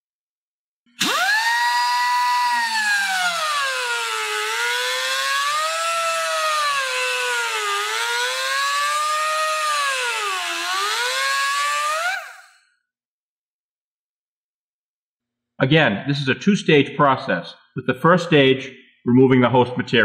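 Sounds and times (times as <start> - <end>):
die grinder whining: 0.9 - 12.6.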